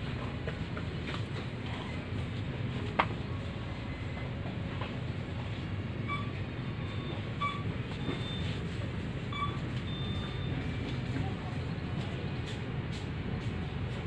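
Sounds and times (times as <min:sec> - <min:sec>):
low ventilation rumble: 0:00.0 - 0:14.0
short electronic beeps: 0:06.0 - 0:08.6, 0:09.3 - 0:10.7.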